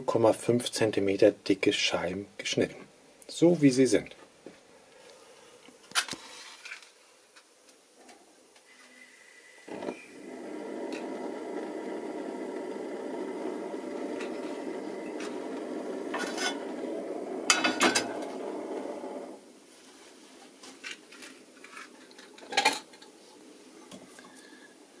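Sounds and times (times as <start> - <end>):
gas burner rushing hum: 9.5 - 19.5
frying pan clattering on grate: 17.5 - 18.1.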